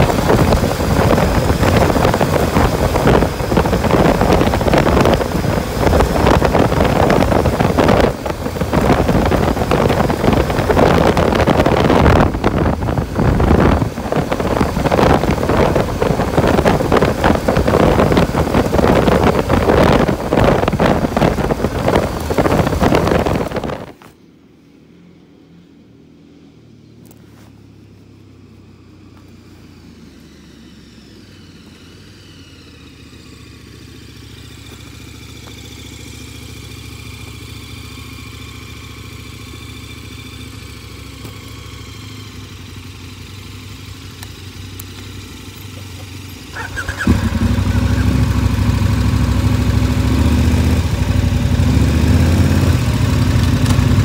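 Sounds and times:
wind rushing over microphone: 0.0 - 24.2
motorcycle riding on gravel: 0.0 - 24.4, 26.9 - 54.0
motorcycle approaching: 0.0 - 54.0
motorcycle engine idling: 28.8 - 54.0.

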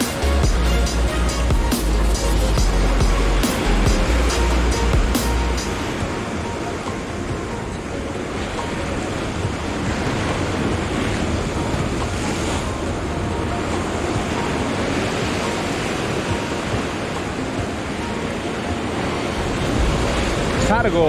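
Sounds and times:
ocean surf breaking over rocks: 0.0 - 21.0
wind buffeting microphone: 5.7 - 21.0.

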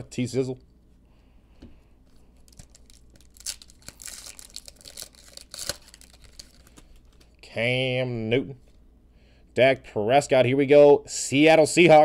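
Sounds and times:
foil wrapper crinkling: 2.4 - 7.3.

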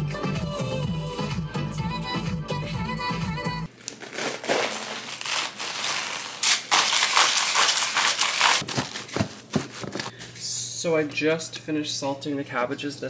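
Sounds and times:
cabbage leaves crunching: 3.7 - 10.1.

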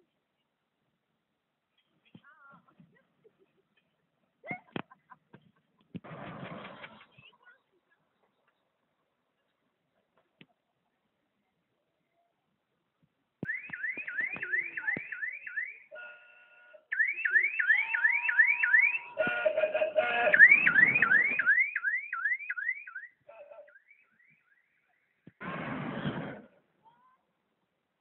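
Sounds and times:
burst of noise: 6.0 - 7.1, 25.4 - 26.6
electronic siren warble: 17.0 - 22.8.

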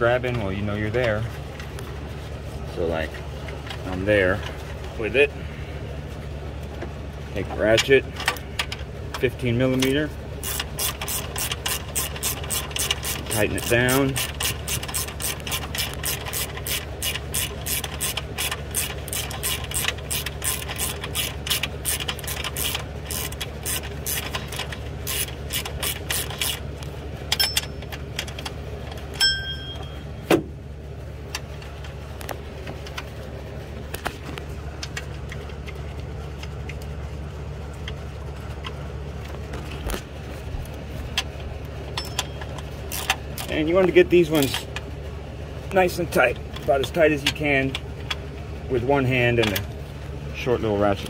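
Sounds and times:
steady low hum: 0.0 - 51.0
sharp clicks and knocks: 6.8 - 30.6, 33.8 - 36.9
ratchet clicking rapidly: 10.4 - 26.7, 42.9 - 43.5.

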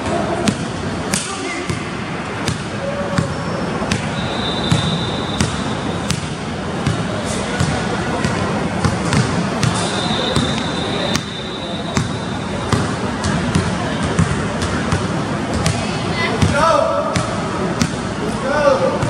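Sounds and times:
basketball bouncing on wood floor: 4.7 - 9.8.

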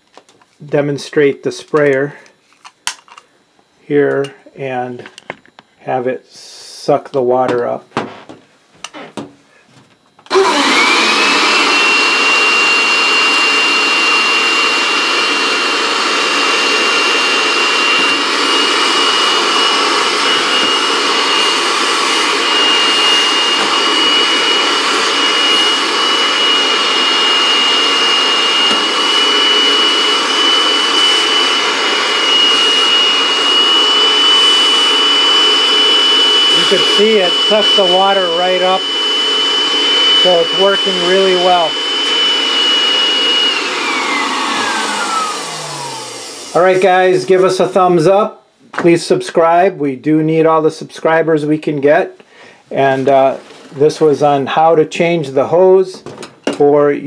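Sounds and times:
carpet cleaner motor whining: 10.2 - 47.5.

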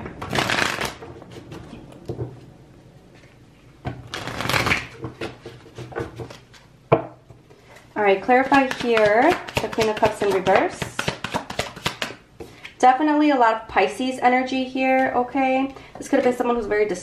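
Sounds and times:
cards shuffling: 0.2 - 1.4, 4.1 - 5.6, 8.7 - 12.2
cards tapping: 8.5 - 12.2.

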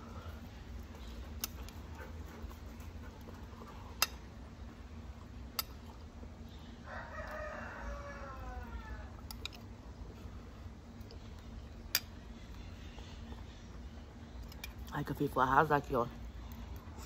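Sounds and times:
rooster crowing: 6.8 - 9.2.

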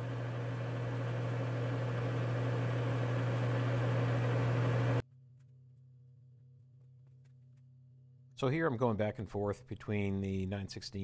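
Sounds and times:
milling machine motor hum: 0.0 - 5.0
faint hum: 0.0 - 8.4.

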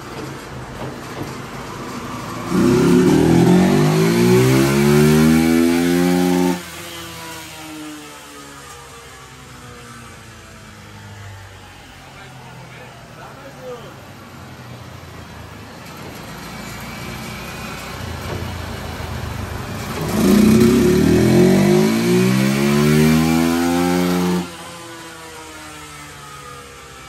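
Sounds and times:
motorcycle engine revving: 2.4 - 8.1, 19.4 - 25.5.

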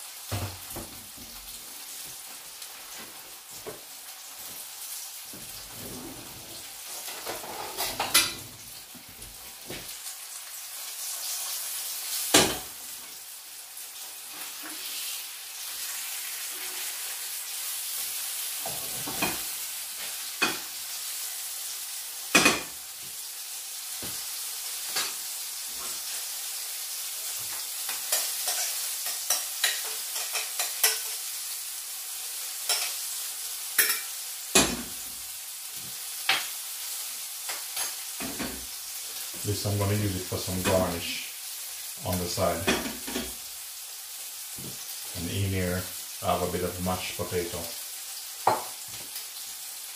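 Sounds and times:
fish sizzling in a pan: 0.0 - 49.9
utensil knocking and scraping pans: 5.4 - 8.6.

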